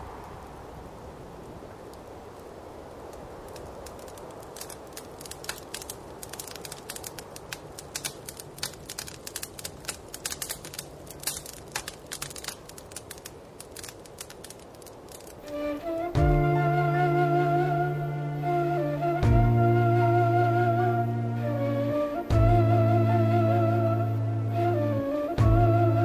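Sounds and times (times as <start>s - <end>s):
fire crackling and popping: 0.0s - 26.0s
flute playing: 15.4s - 26.0s.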